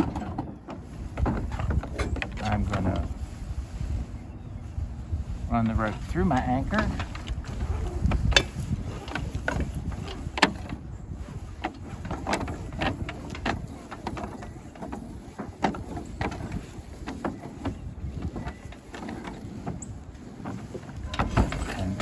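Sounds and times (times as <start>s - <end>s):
wind rumble on microphone: 0.0s - 22.0s
rope pulled through metal anchor: 5.9s - 22.0s.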